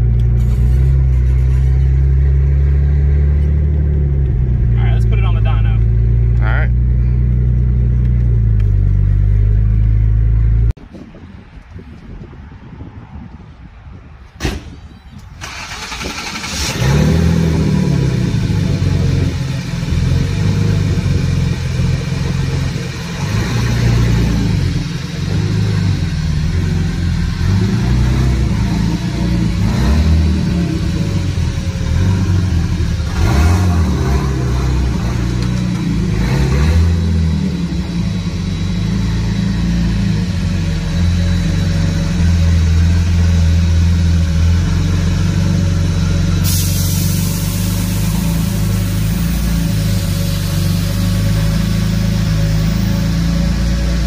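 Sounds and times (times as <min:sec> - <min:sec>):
car engine revving: 0:15.4 - 0:54.0.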